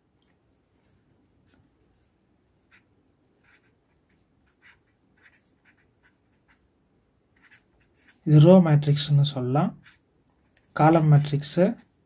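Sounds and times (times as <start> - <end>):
marker pen scratching on paper: 0.6 - 8.6, 9.7 - 10.1.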